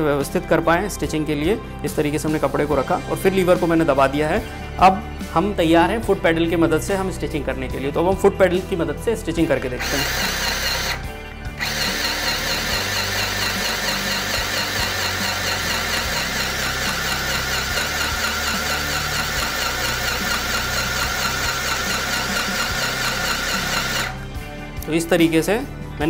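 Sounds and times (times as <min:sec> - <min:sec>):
sewing machine motor: 0:09.8 - 0:24.2.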